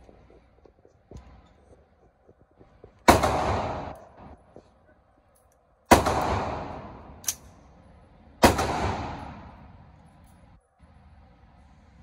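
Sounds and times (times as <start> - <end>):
gunshots echoing indoors: 3.0 - 4.5, 5.8 - 7.7, 8.3 - 10.0
sharp click: 7.2 - 7.6.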